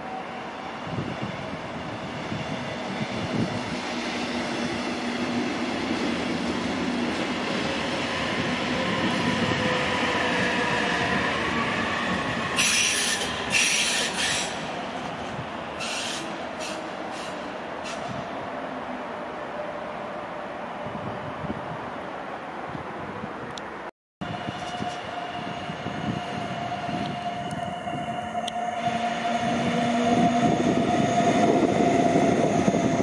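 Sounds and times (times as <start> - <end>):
train wheels rumbling on rails: 0.0 - 18.4, 24.2 - 33.0
locomotive whining tones: 24.2 - 33.0
high-pitched squeals: 24.3 - 33.0.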